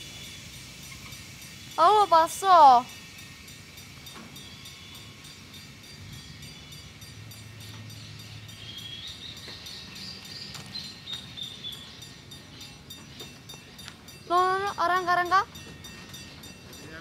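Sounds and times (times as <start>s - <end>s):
high hiss: 0.0s - 9.0s.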